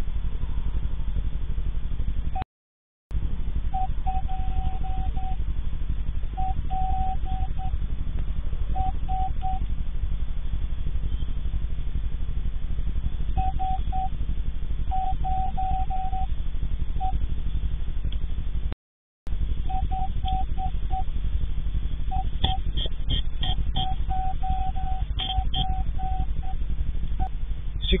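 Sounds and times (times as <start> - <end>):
steady low hum with flutter: 0.0 - 2.4, 3.1 - 28.0
short beeps: 3.7 - 5.4, 6.4 - 7.8, 8.8 - 9.6, 13.4 - 14.2, 14.9 - 16.3, 19.7 - 21.1, 22.1 - 26.6.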